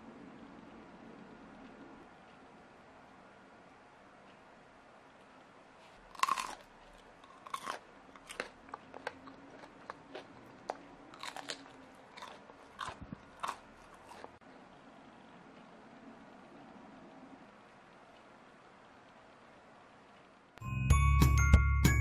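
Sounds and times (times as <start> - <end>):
crunchy food being chewed: 5.8 - 14.4.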